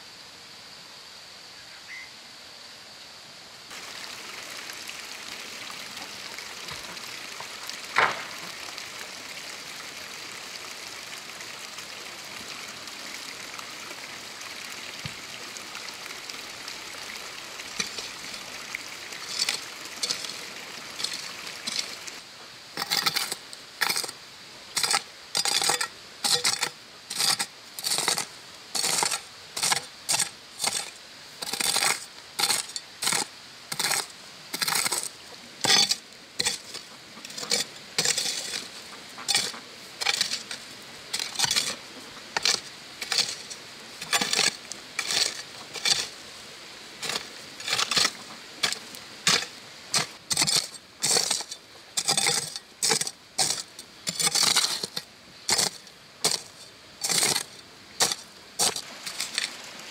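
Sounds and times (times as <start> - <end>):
hoe chopping stony earth: 7.9 - 8.6, 22.8 - 24.2, 24.8 - 36.8, 37.4 - 38.7, 39.3 - 41.8, 42.4 - 46.1, 47.0 - 59.6.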